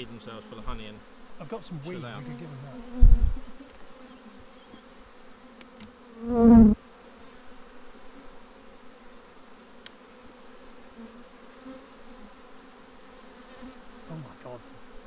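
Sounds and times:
honeybees buzzing: 0.0 - 15.0
faint clicks: 9.8 - 10.0.

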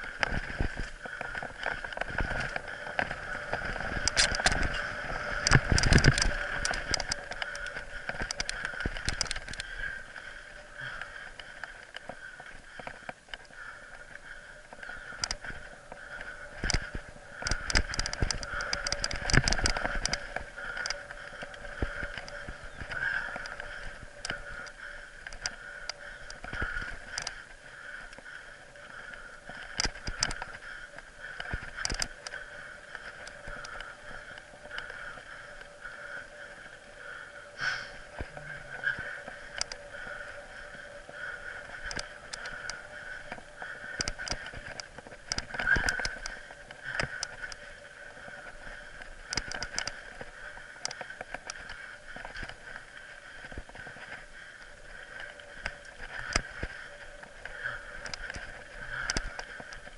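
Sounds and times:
bike knocking and rattling: 0.0 - 59.9
steady whine: 0.0 - 59.9
tyres on dirt and gravel: 0.0 - 59.9.

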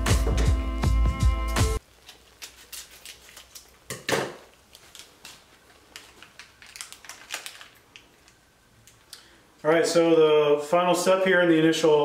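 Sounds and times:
small packet crinkling and rustling: 1.8 - 9.2.

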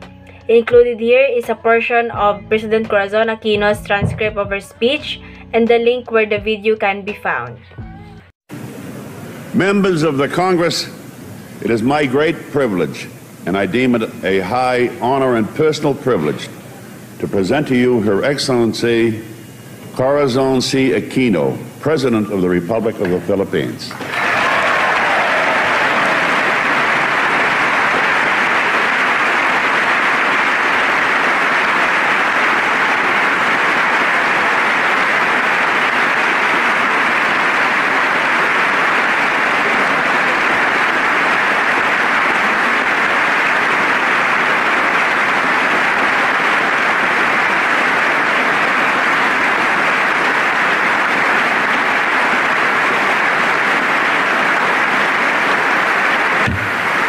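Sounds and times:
large crowd applauding: 11.6 - 16.3, 24.0 - 57.0.

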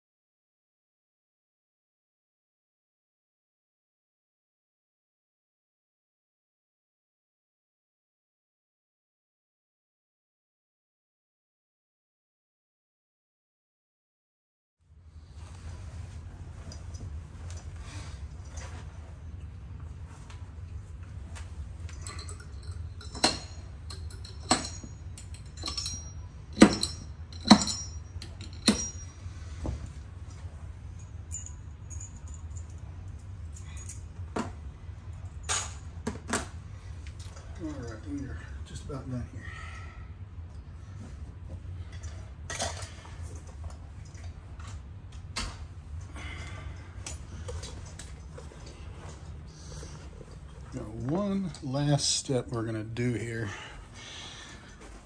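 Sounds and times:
steady low hum: 14.8 - 55.0.

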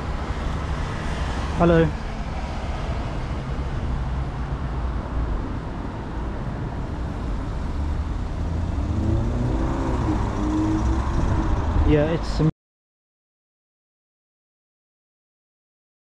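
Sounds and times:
road traffic rumble: 0.0 - 12.5.

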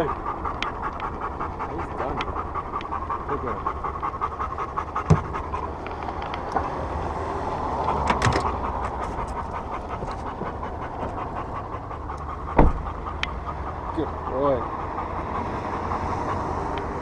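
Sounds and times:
dog panting: 0.0 - 17.0
sharp knocks: 5.0 - 5.4, 12.6 - 12.9.

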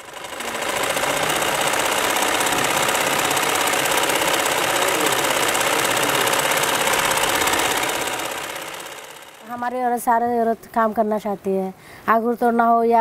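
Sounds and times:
sewing machine stitching: 0.0 - 9.6.

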